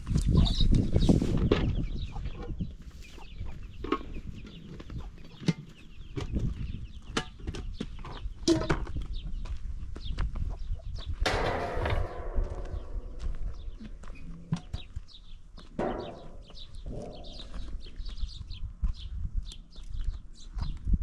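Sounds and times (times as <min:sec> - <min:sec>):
chickens clucking: 0:00.1 - 0:09.0, 0:15.8 - 0:18.0.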